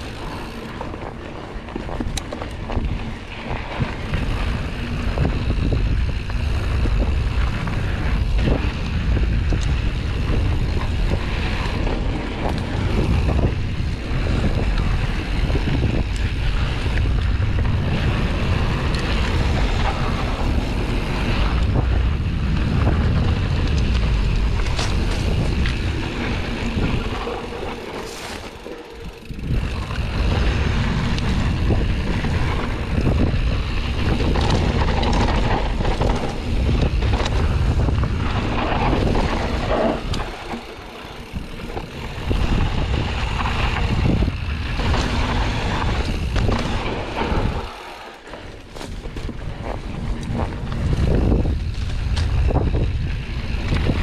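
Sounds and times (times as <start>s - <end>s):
bike clicks and knocks: 0.0s - 54.0s
bike tyres on dirt and stones: 0.0s - 54.0s
wind buffeting microphone: 0.0s - 54.0s.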